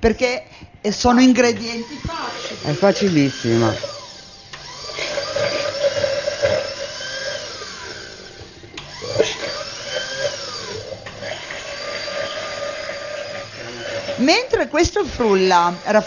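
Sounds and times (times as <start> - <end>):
countertop blender running: 1.1 - 16.0.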